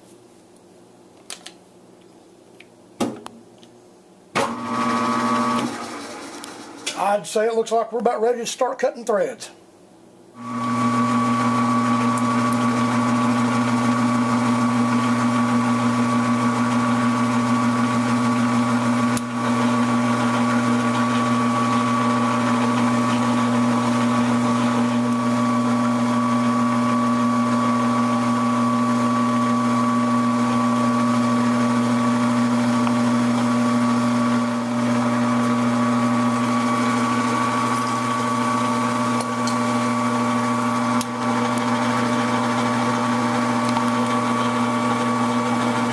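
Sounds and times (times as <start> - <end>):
lathe motor hum: 4.4 - 7.0, 10.4 - 45.9.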